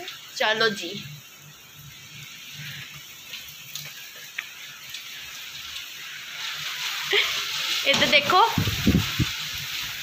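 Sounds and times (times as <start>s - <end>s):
heavy rain and wind: 5.2s - 10.0s.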